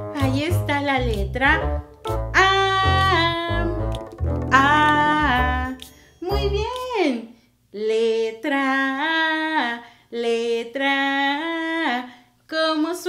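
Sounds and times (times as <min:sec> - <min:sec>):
woman singing: 0:02.4 - 0:03.9, 0:04.5 - 0:06.9, 0:07.8 - 0:13.0.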